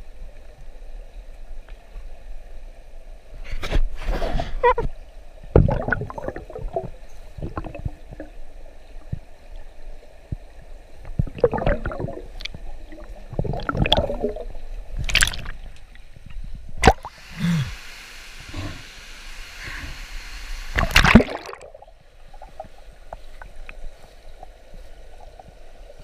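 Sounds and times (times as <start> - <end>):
underwater gurgling and bubbling: 5.5 - 9.2, 11.0 - 15.7, 20.7 - 23.6
sharp water splash: 13.4 - 15.7, 16.8 - 17.2, 20.7 - 21.8.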